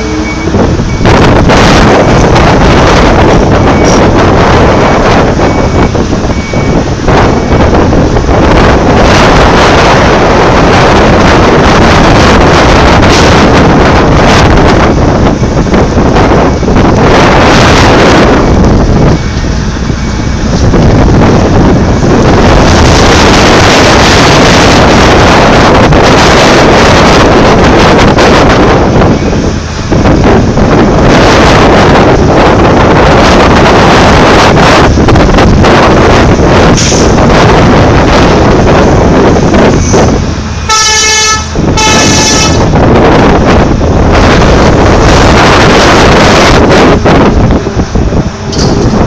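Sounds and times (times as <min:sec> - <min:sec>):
excavator machinery noise: 0:00.0 - 0:49.0
wind on microphone: 0:00.0 - 0:49.0
machine horn blasts: 0:40.7 - 0:42.7.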